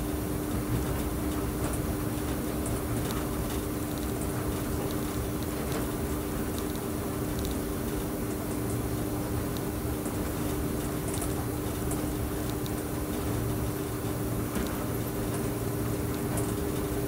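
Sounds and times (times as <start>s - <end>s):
faint light ticks: 6.5s - 8.8s, 14.5s - 14.8s.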